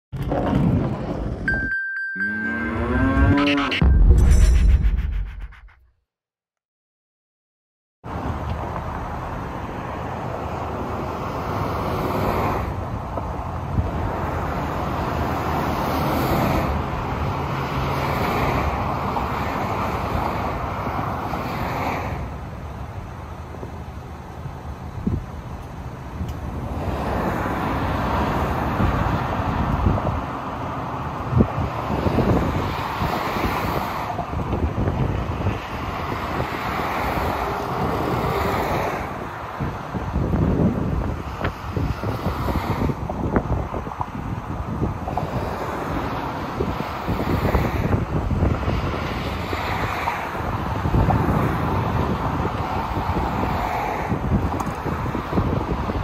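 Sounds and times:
highway traffic passing: 0:00.7 - 0:04.0, 0:08.1 - 0:56.0
wind buffeting microphone: 0:31.2 - 0:38.3, 0:39.1 - 0:56.0.

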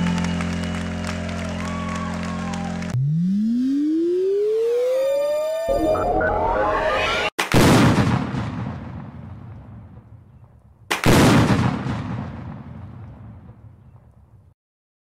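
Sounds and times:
rising synth sweep: 0:03.0 - 0:07.4.

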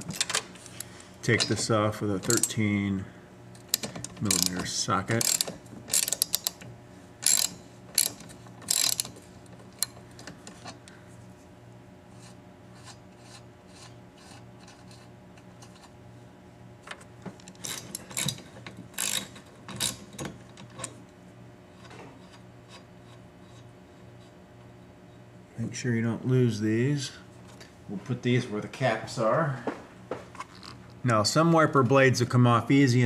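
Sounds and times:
ratchet wrench clicking: 0:03.7 - 0:04.6, 0:05.2 - 0:06.6, 0:07.2 - 0:09.2, 0:19.0 - 0:20.0.

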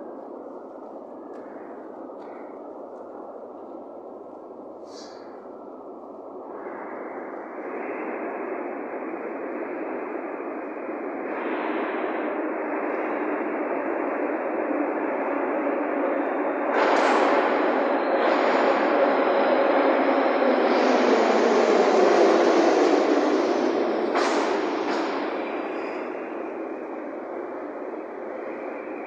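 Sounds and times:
train rumbling in tunnel: 0:00.0 - 0:29.0.

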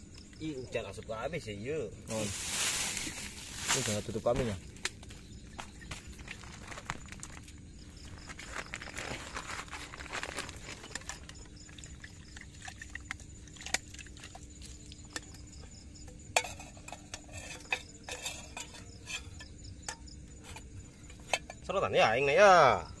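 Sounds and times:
plastic rustling: 0:02.1 - 0:04.6, 0:05.9 - 0:11.8
metal pot and lid clinking: 0:16.3 - 0:21.7.

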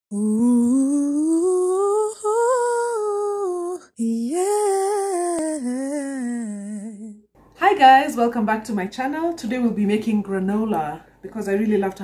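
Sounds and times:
woman humming a slow tune: 0:00.1 - 0:07.2.

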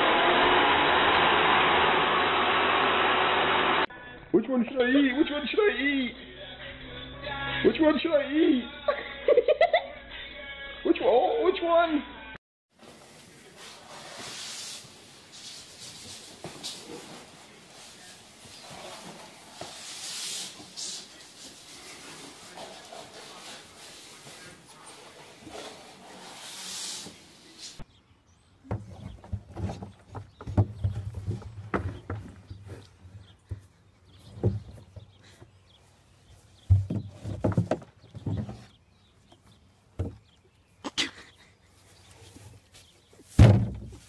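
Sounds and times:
duster swishing on wooden floor: 0:13.6 - 0:27.8
rubber tub thumping on wood: 0:28.6 - 0:32.8, 0:36.6 - 0:38.7, 0:43.3 - 0:44.0.

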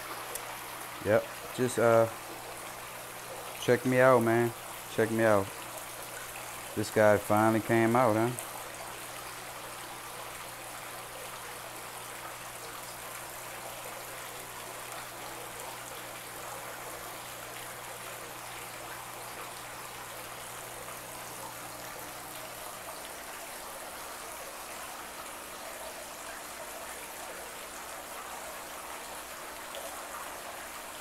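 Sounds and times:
water trickling into pond: 0:00.0 - 0:31.0.

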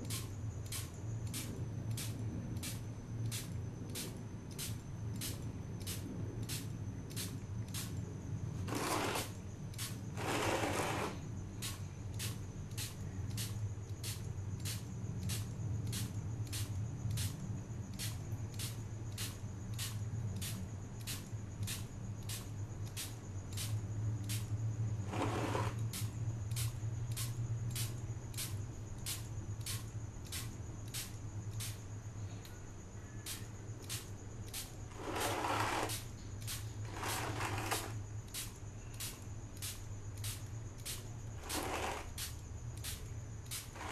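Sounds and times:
regular ticks: 0:00.0 - 0:08.1, 0:11.6 - 0:31.8, 0:33.2 - 0:43.9
steady low hum: 0:00.0 - 0:43.9
air compressor humming: 0:08.6 - 0:14.8, 0:25.0 - 0:26.1, 0:33.9 - 0:38.0, 0:39.0 - 0:43.9
spray gun hissing bursts: 0:08.7 - 0:15.4, 0:33.3 - 0:43.9.

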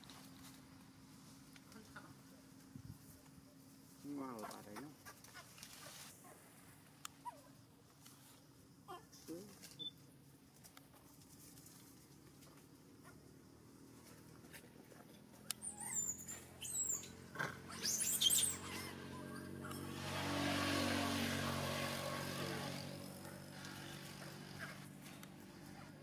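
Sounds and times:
baby monkey squeaky calls: 0:15.6 - 0:19.5.

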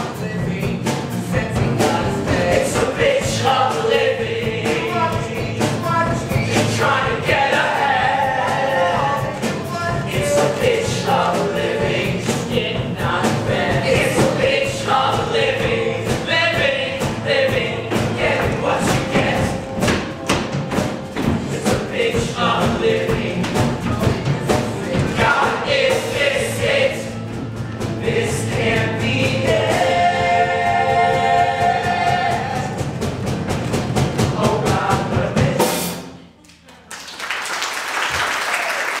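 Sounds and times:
men singing with live band: 0:00.0 - 0:19.8, 0:21.2 - 0:27.2, 0:28.0 - 0:32.8, 0:34.3 - 0:35.9
audience applause: 0:36.9 - 0:39.0.

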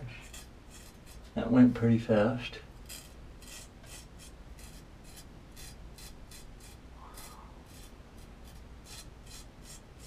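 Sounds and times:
knife blade scraping whiskers: 0:02.8 - 0:10.0.

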